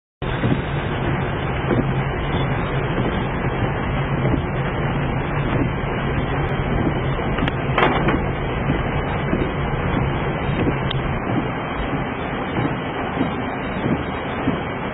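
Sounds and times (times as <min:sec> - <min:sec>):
car engine hum: 0:00.2 - 0:14.9
short clatter: 0:07.4 - 0:08.4.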